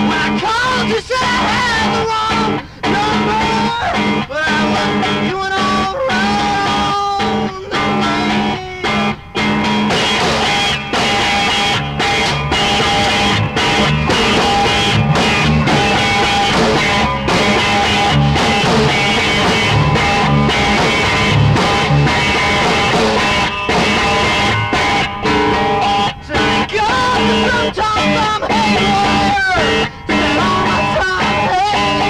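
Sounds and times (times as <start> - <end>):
rock guitar: 0.0 - 32.0
pulsing low beat: 9.0 - 26.6.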